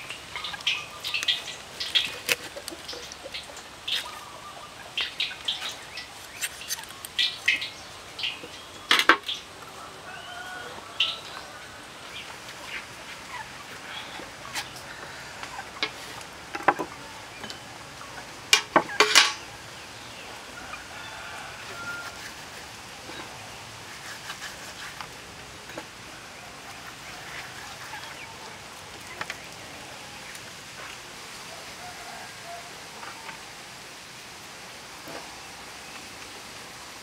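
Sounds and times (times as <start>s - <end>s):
salt rubbed into fish by hand: 23.8s - 25.1s.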